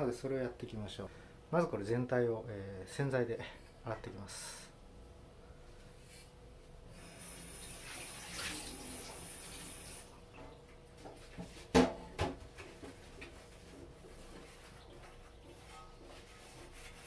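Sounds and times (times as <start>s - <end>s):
pot knocking in sink: 11.7s - 12.4s.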